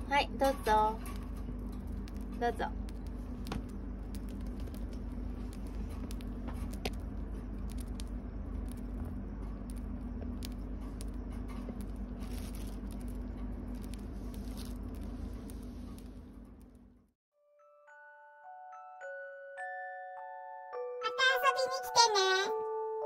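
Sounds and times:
steady low hum: 0.0 - 17.2
bird cracking seeds with beak: 1.1 - 9.0, 9.6 - 16.2.

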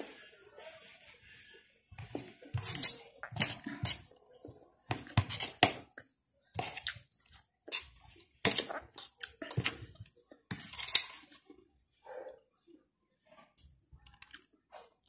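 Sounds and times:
cutlery clinking on a plate: 2.5 - 4.1, 10.5 - 11.2.

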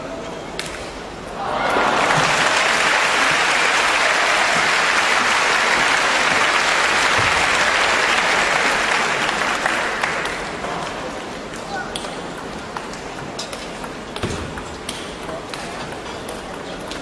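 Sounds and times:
crowd applauding: 1.4 - 11.0.

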